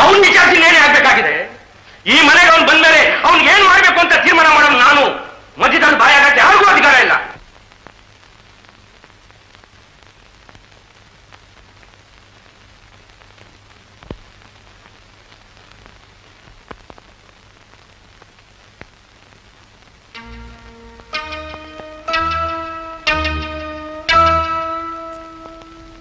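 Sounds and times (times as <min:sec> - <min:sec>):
old film soundtrack hiss: 0:00.0 - 0:26.0
faint crackles and clicks: 0:07.4 - 0:20.2, 0:25.1 - 0:26.0
plucked-string music: 0:20.2 - 0:26.0.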